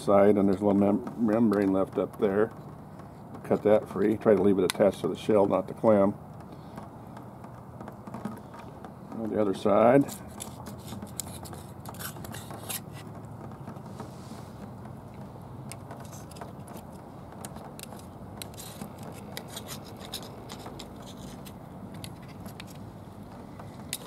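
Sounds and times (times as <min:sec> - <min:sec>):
low background noise: 0:00.0 - 0:24.0
knife scraping clam shell: 0:10.0 - 0:13.1, 0:15.7 - 0:22.9, 0:23.8 - 0:24.0.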